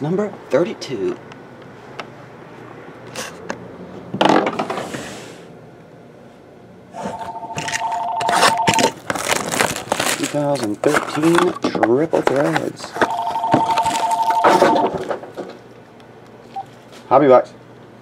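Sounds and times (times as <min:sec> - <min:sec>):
loud plastic rustle: 0:08.3 - 0:11.7
plastic wrap scraped and slit: 0:09.0 - 0:11.4.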